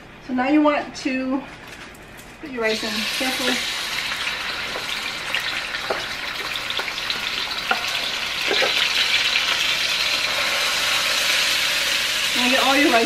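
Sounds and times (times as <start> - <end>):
rice sizzling in oil: 2.8 - 13.0.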